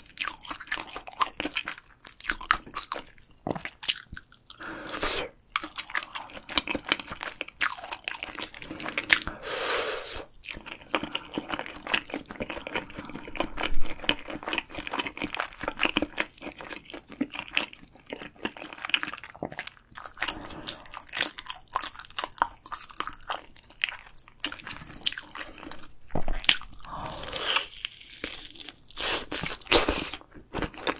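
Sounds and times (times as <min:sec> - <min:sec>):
person chewing crunchy food: 0:00.0 - 0:30.9.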